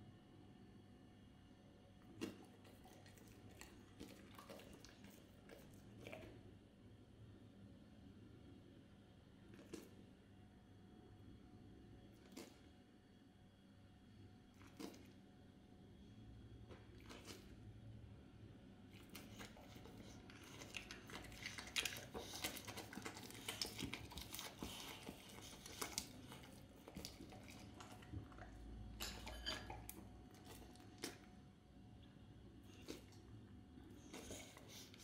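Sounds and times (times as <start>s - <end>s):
dog licking and lip smacking: 2.0s - 6.4s, 12.2s - 12.7s, 14.6s - 15.2s, 16.7s - 17.6s, 18.9s - 31.4s, 32.6s - 35.0s.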